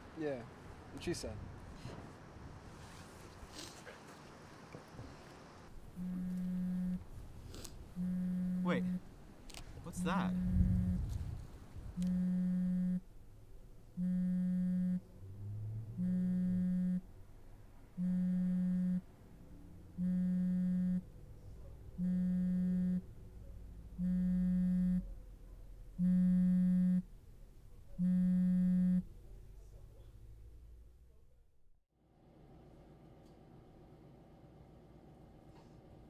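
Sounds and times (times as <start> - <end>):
phone vibrating on bed: 6.0 - 7.1, 8.0 - 9.0, 10.0 - 11.2, 12.0 - 13.0, 14.0 - 15.0, 16.0 - 17.0, 18.0 - 19.0, 20.0 - 21.0, 22.0 - 23.0, 24.0 - 25.1, 26.0 - 27.0, 28.0 - 29.0.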